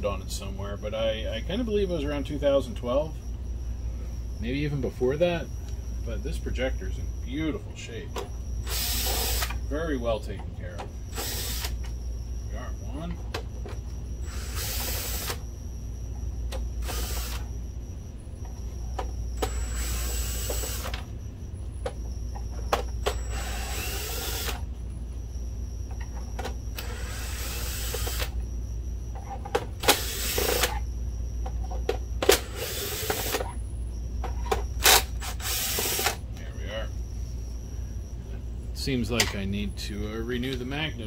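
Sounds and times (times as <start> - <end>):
cordless drill running: 8.6 - 9.6, 11.1 - 11.8, 14.2 - 15.4, 16.8 - 17.5, 19.4 - 20.9, 23.1 - 24.6, 26.8 - 28.3, 29.8 - 30.7, 32.4 - 33.4, 34.8 - 36.2.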